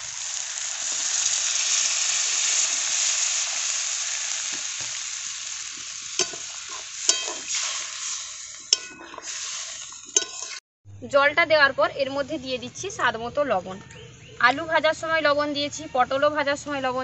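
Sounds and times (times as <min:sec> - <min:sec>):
water sizzling in hot oil: 0:00.0 - 0:10.6
metal spatula clinking pan: 0:06.2 - 0:07.6, 0:08.7 - 0:09.3, 0:10.2 - 0:10.6.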